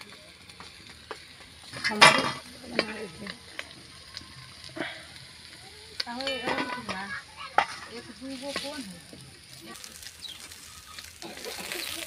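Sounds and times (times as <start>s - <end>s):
fish sizzling in hot oil: 0.0s - 12.0s
metal spatula scraping wok: 9.6s - 12.0s.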